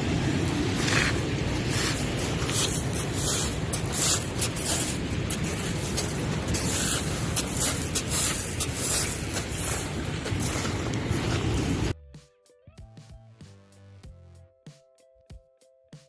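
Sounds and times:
river rapids rushing: 0.0 - 11.9
wind rumbling on microphone: 0.0 - 12.0.

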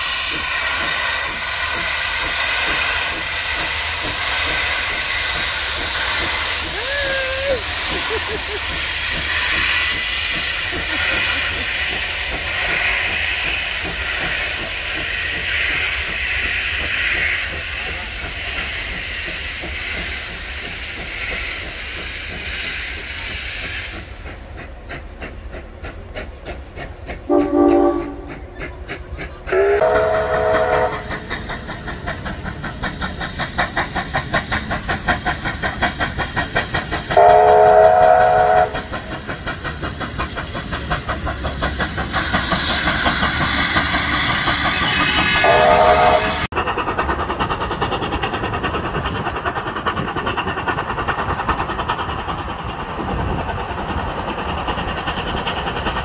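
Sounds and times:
steam locomotive exhaust beats: 0.0 - 56.0
train carriages rolling past: 0.0 - 56.0
steam whistle blasts: 27.3 - 28.4, 29.5 - 31.1, 37.2 - 38.8, 44.8 - 46.5.

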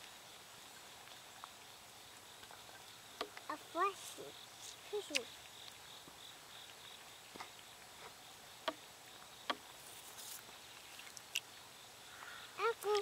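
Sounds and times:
insect chirring: 0.0 - 13.0
stick tapping in water: 8.6 - 8.8, 9.4 - 9.7.

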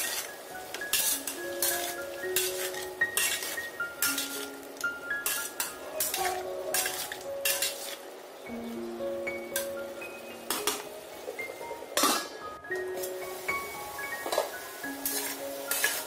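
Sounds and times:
spatula scraping a frying pan: 0.0 - 8.1, 14.2 - 16.0
light sizzle: 0.0 - 16.0.

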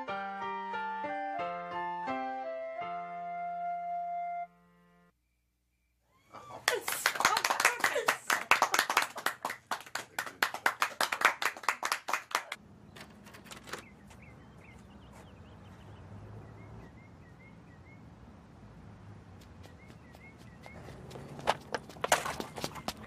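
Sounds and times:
hand clapping: 6.6 - 12.6.

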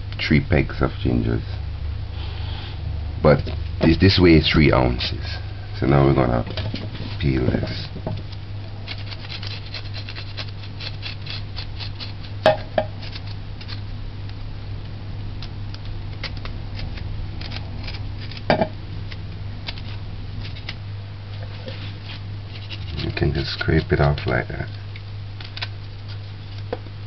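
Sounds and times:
steady low hum: 0.0 - 27.0
knife scraping ginger skin: 8.7 - 13.9, 15.4 - 20.8, 21.6 - 26.8.

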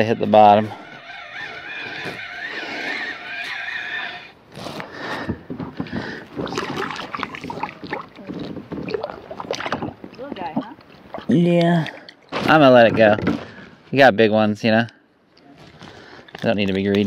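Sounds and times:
fishing reel whining: 0.6 - 4.3
fish splashing in water: 6.3 - 10.2.

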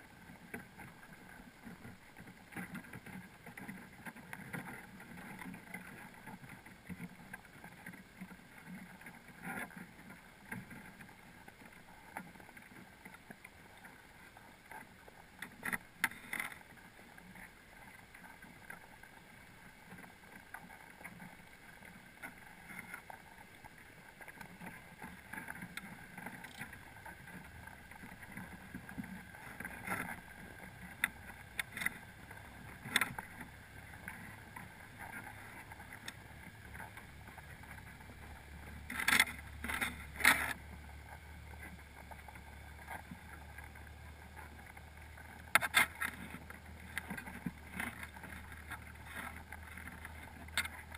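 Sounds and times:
underwater water wash: 0.0 - 50.9
sharp clicks and knocks: 25.7 - 26.8.

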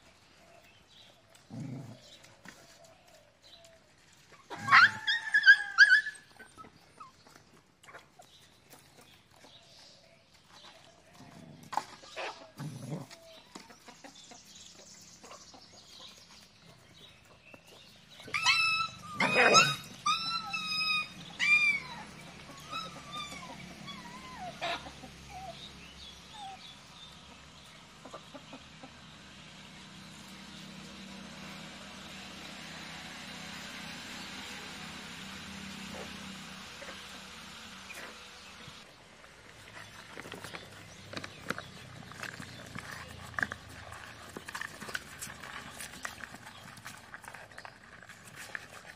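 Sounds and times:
puppies yelping and whining: 1.3 - 9.6, 17.2 - 27.2.

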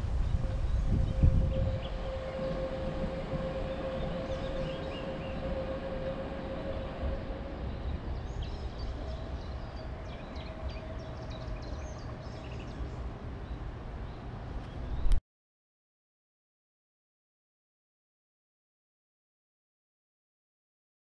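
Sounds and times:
distant diesel locomotive running: 0.0 - 15.2
birds chirping: 0.2 - 15.2.

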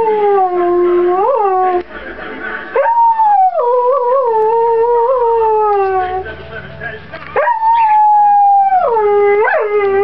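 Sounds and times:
tv commercial: 6.2 - 8.3
dog howling: 7.4 - 10.0.

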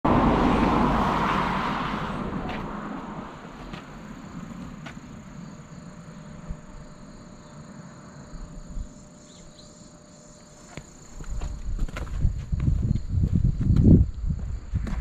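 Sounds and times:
car passing rumble: 0.0 - 8.3
insects chirring: 0.5 - 15.0.

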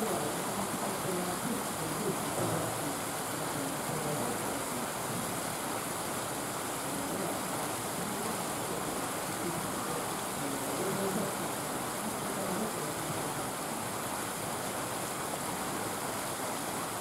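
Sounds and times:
faint low murmurs: 0.0 - 17.0
steady rushing noise: 0.0 - 17.0.

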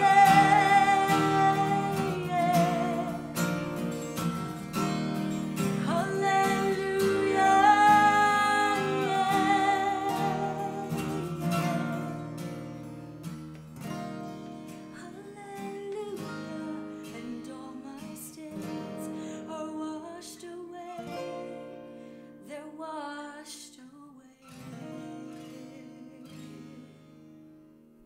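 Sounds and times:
person singing: 0.0 - 3.9, 5.6 - 12.4, 22.5 - 27.2
strummed acoustic guitar: 0.0 - 23.7, 24.4 - 28.0.

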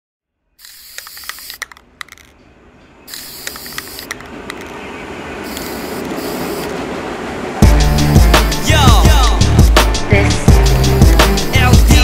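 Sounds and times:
steady high hiss: 5.4 - 6.8, 10.5 - 12.0.

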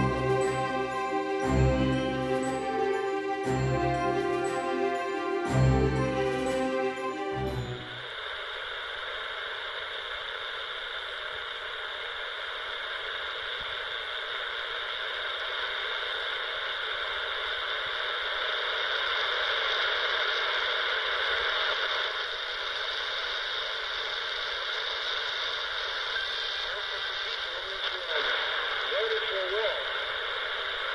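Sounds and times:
radio static hissing: 7.9 - 30.9.

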